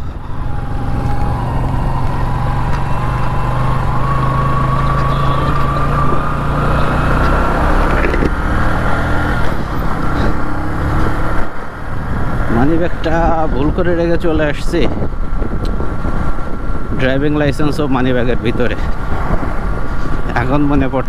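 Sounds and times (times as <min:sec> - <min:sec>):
motorcycle engine running: 0:00.0 - 0:08.7.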